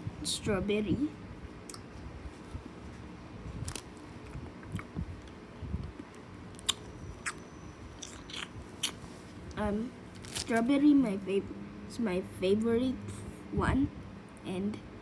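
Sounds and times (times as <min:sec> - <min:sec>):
person chewing candy: 0:06.5 - 0:07.4, 0:08.0 - 0:09.0.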